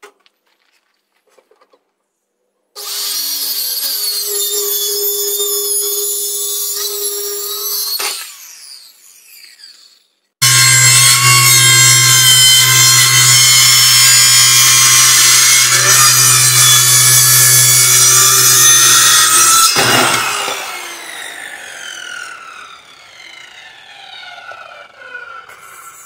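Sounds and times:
circular saw cutting wood: 2.8 - 26.0
saw blade spinning down: 7.3 - 26.0.

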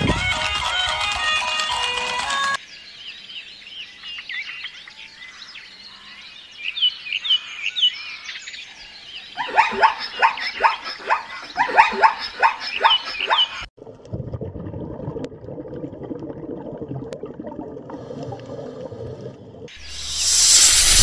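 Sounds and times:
birds chirping: 2.6 - 13.7.

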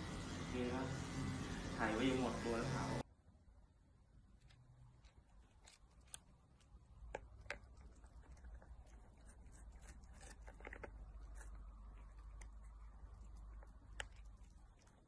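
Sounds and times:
kitten licking plastic sachet: 5.0 - 15.0.

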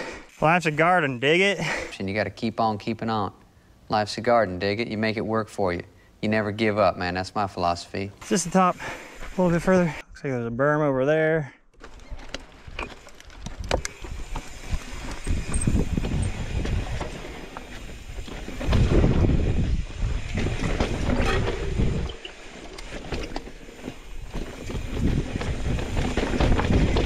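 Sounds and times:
bike clicks and rattles: 11.8 - 27.0
tyres rolling on dirt and rock: 11.8 - 27.0
wind rushing over microphone: 13.5 - 22.2.

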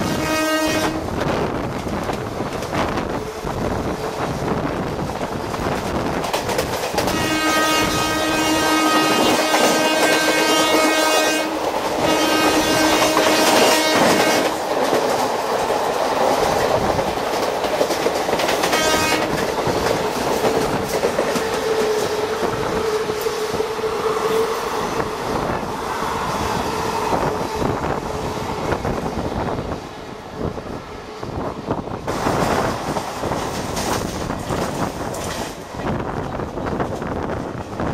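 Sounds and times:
train horn blasts: 0.0 - 1.2, 7.0 - 14.6, 18.6 - 19.4
train wheels rumbling and clattering: 0.0 - 37.9.

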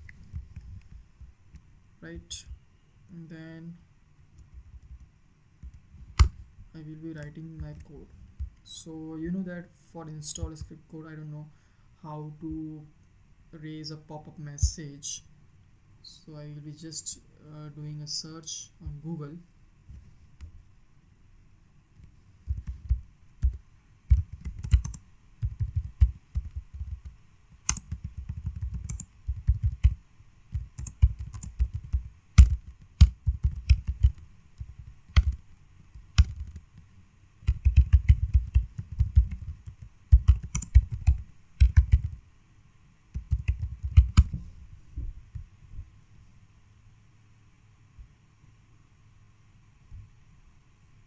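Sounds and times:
typing on computer keyboard: 22.5 - 36.8, 37.4 - 42.2, 43.2 - 44.3.

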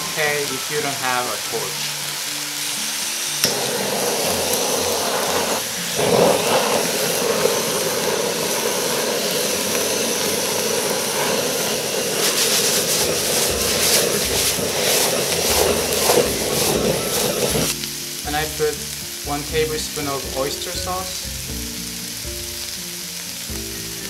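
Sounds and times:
food sizzling in a wok: 0.0 - 24.0
gas torch flame hissing: 0.0 - 24.0
torch click: 3.2 - 17.8.

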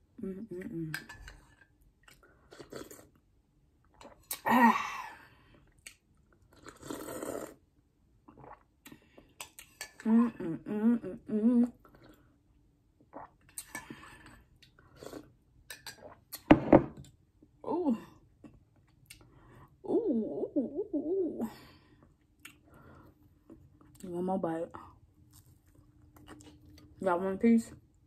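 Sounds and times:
woman slurping from spoon: 6.6 - 7.6
woman humming enjoyment: 10.1 - 11.8.

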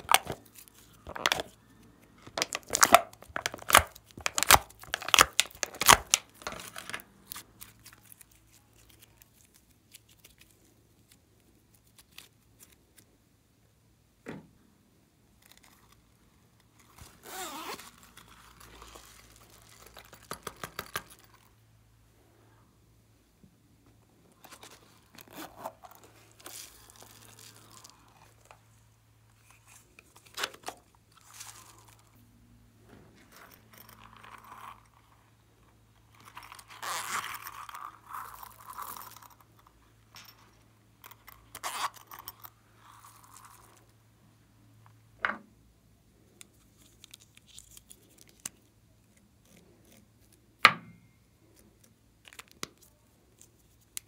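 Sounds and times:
squishing and crunching slime: 0.0 - 13.1, 24.4 - 32.2.

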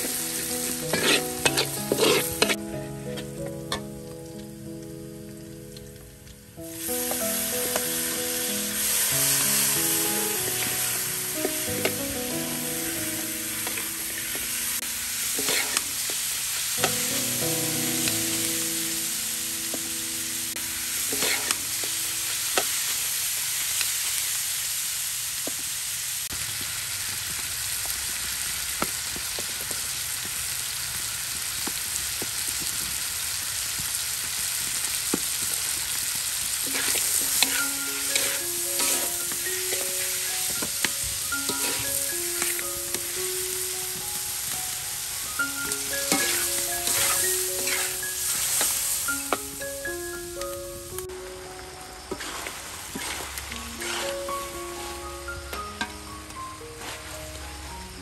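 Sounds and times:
metal spatula scraping wok: 0.0 - 2.6, 15.2 - 16.2, 21.0 - 21.7, 36.6 - 42.8, 45.6 - 49.0, 52.1 - 54.5
chicken sizzling in a wok: 0.0 - 58.0.

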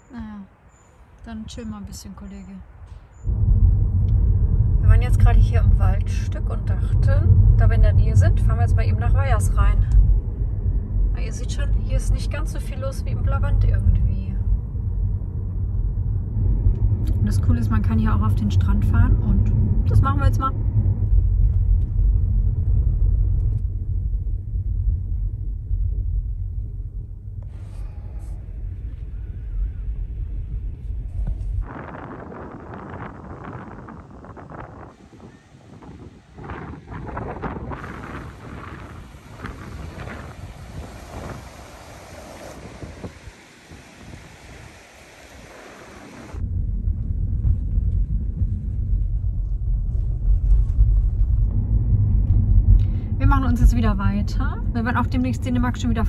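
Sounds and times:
tyres rolling over sand: 31.2 - 46.4.

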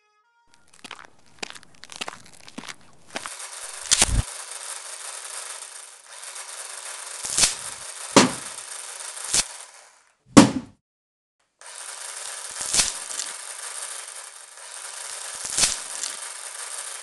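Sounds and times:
metal cracking: 0.5 - 9.8, 11.7 - 17.0
hydraulic rescue tool hissing: 3.2 - 8.8.

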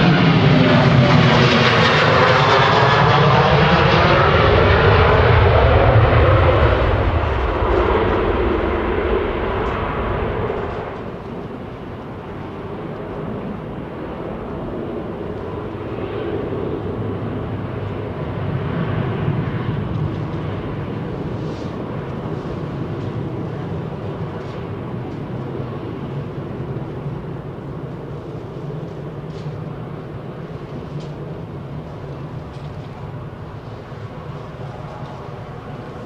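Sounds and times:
distant jet engines spooling up: 0.0 - 36.0
jet engines at takeoff thrust: 0.0 - 36.0.

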